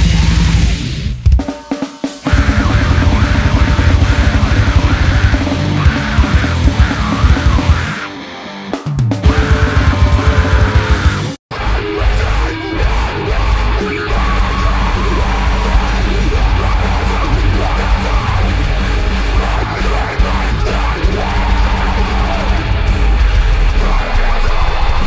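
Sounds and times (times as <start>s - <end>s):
distorted guitar: 0.0s - 25.0s
drums: 0.0s - 25.0s
person yelling vocals: 2.3s - 8.1s, 9.3s - 15.6s.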